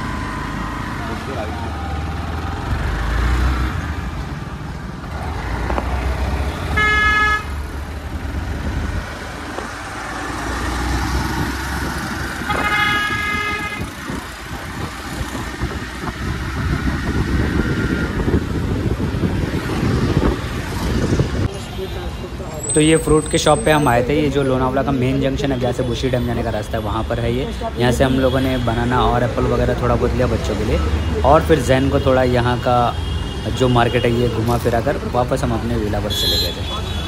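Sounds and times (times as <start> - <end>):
wind and road rumble: 0.0 - 28.0
vehicle horn honking: 6.5 - 7.6, 12.5 - 14.0, 36.1 - 37.0.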